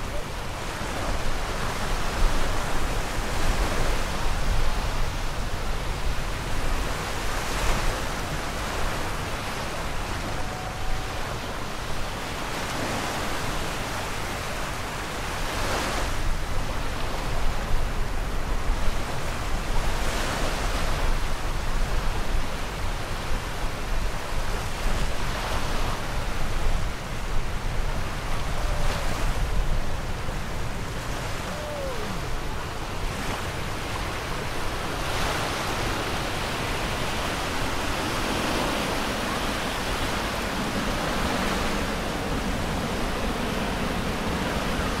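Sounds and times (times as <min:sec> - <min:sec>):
waves washing on sandy shore: 0:00.0 - 0:45.0.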